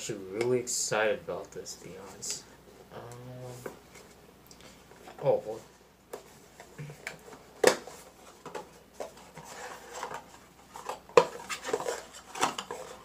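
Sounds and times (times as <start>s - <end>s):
packaging clicks and rustles: 6.8s - 13.0s.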